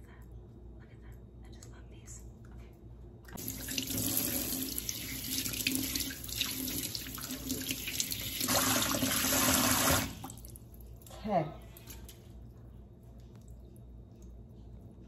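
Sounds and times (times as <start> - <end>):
faucet water splashing into sink: 3.4 - 10.6.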